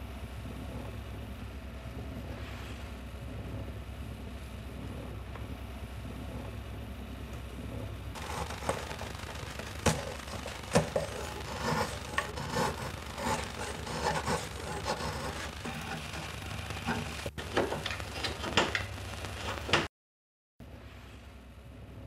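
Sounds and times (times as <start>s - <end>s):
hand tool scraping wood: 8.2s - 19.9s.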